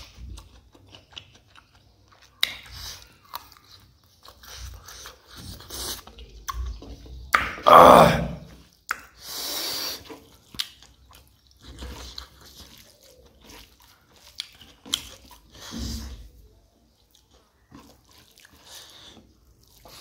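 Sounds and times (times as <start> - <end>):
wet chewing and mouth clicks: 0.0 - 7.6, 8.6 - 20.0
fingers squishing rice in gravy: 8.7 - 20.0.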